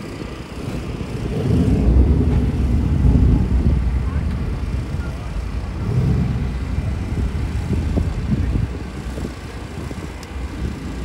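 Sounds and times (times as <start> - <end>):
low street noise rumble: 0.0 - 11.0.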